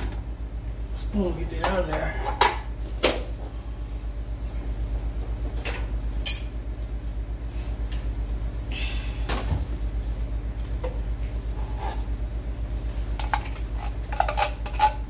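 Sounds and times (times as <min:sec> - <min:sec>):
low pulsing hum: 0:00.0 - 0:15.0.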